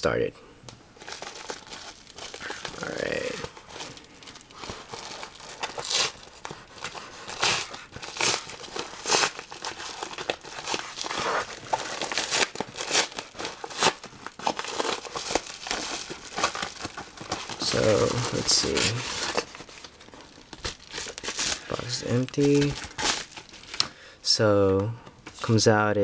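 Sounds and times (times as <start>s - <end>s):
padded mailer paper tearing: 4.7s - 19.9s, 20.7s - 23.8s.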